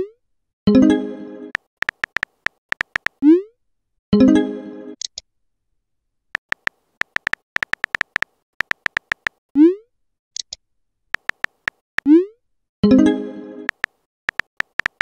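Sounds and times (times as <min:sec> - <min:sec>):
keyboard tap clicks: 0:01.6 - 0:03.2, 0:06.4 - 0:09.4, 0:11.2 - 0:11.8, 0:13.7 - 0:15.0.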